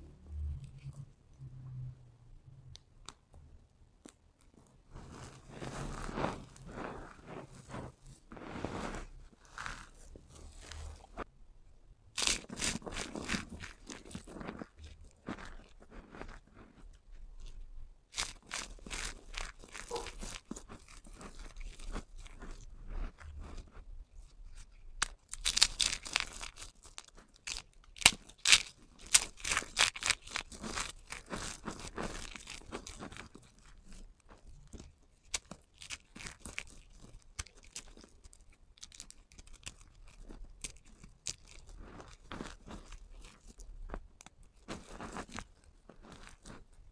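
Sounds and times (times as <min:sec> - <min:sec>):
dry soap crunching: 0:04.0 - 0:11.3, 0:12.2 - 0:46.9.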